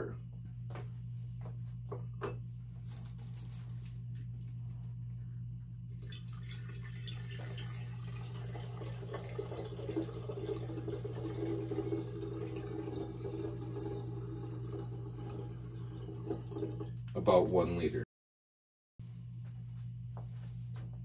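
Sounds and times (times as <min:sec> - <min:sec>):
steady low hum: 0:00.0 - 0:18.0, 0:19.0 - 0:21.0
water pouring and splashing: 0:06.0 - 0:17.1.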